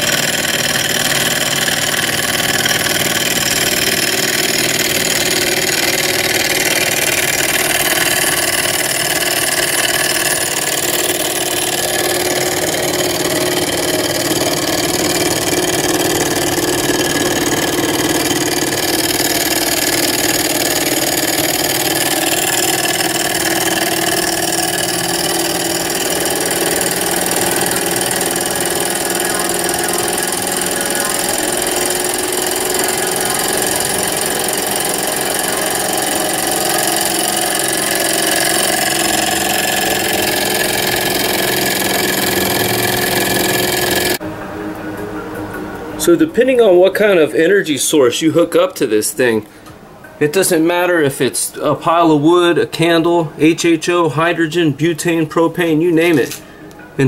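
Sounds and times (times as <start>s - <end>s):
small engine mechanical whir: 0.0s - 44.2s
low hum: 0.0s - 46.5s.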